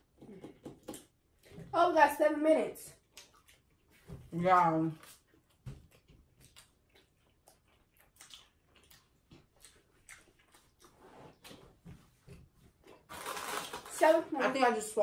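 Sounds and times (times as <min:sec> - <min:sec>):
faint chewing: 0:02.9 - 0:04.3, 0:04.9 - 0:13.9.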